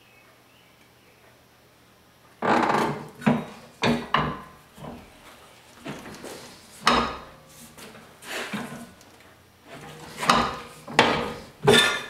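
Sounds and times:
metallic clunks and scrapes: 0:05.8 - 0:09.0, 0:09.7 - 0:12.0.

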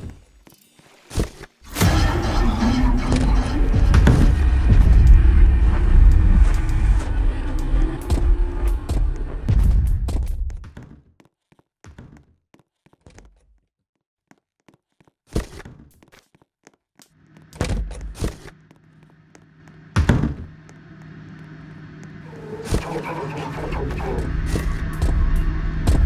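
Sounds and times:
low rumble: 0:01.8 - 0:10.6, 0:19.4 - 0:26.0.

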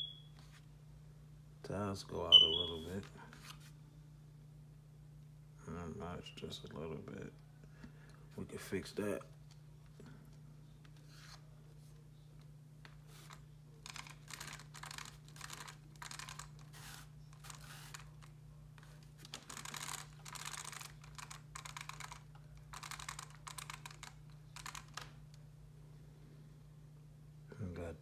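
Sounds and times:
faint steady hum: 0:00.0 - 0:28.0
plastic toy parts clicking and rattling: 0:13.8 - 0:16.6, 0:19.3 - 0:25.1.

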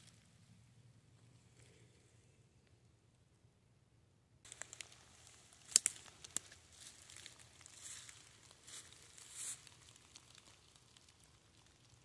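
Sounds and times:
footsteps crunching dead leaves: 0:04.5 - 0:10.4
twigs snapping: 0:04.5 - 0:12.0.

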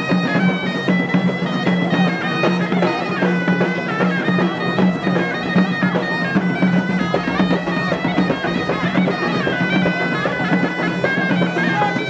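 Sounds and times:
wooden pipe melody over drone: 0:00.0 - 0:12.0.

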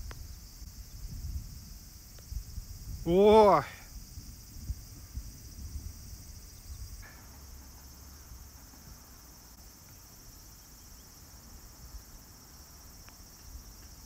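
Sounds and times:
insects chorus: 0:00.0 - 0:14.0.

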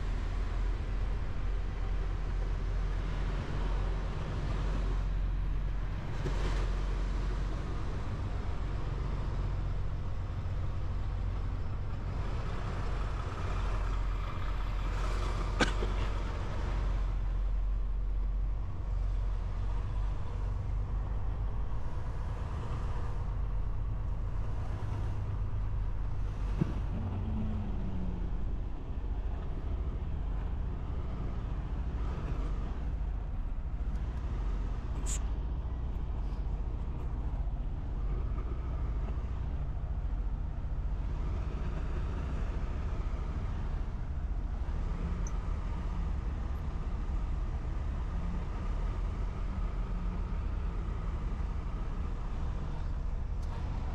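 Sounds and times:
truck engine droning: 0:00.0 - 0:53.9.

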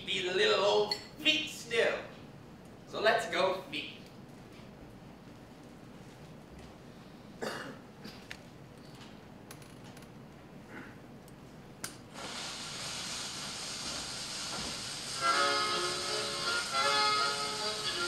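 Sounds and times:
needle hiss on record: 0:11.2 - 0:18.0
music from record: 0:15.0 - 0:18.0.

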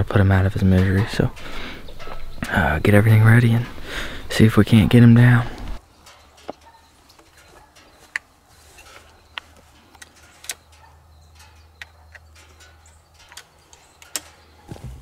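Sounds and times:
air rifle handling clicks: 0:08.9 - 0:14.5.

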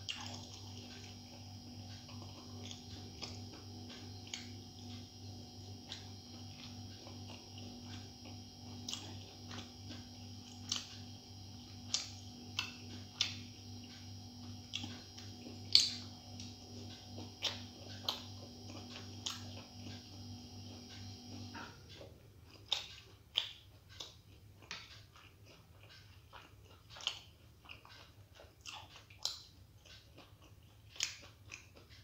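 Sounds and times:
steady hum: 0:00.0 - 0:23.3
person chewing food: 0:00.0 - 0:32.0.

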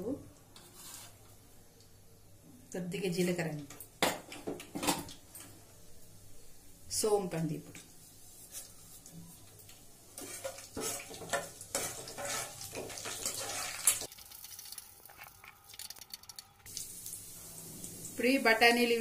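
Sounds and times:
spices sizzling in hot oil: 0:06.9 - 0:19.0
skimmer scraping a metal pan: 0:10.2 - 0:14.1.

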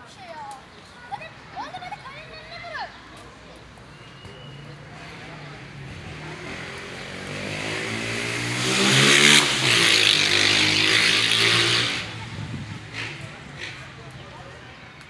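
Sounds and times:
vehicle engine passing by: 0:04.9 - 0:14.2.

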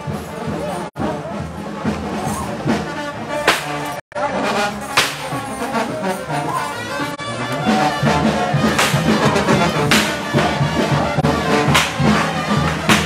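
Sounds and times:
brass band playing: 0:00.0 - 0:13.0
crashing percussion hits: 0:04.8 - 0:05.8, 0:08.4 - 0:10.6, 0:11.2 - 0:13.0.

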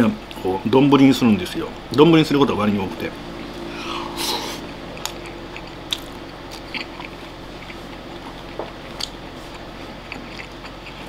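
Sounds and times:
steady low hum: 0:00.0 - 0:11.0
chewing close to microphone: 0:04.6 - 0:11.0.

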